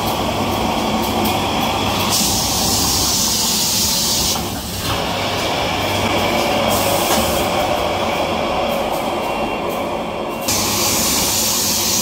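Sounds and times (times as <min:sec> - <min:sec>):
loud hiss: 0:02.1 - 0:04.4, 0:10.5 - 0:12.0
motors and conveyors running: 0:10.4 - 0:12.0.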